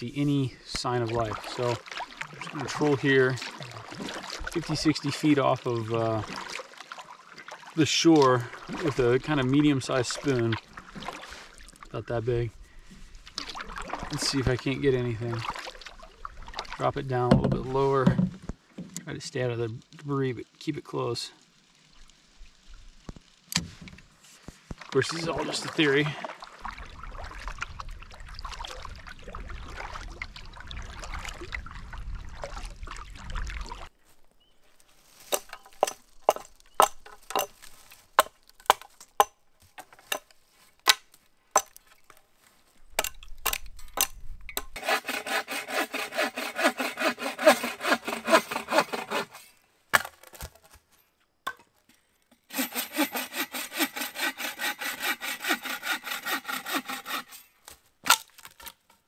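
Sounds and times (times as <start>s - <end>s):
bow saw cutting wood: 44.7s - 49.6s, 52.4s - 57.8s.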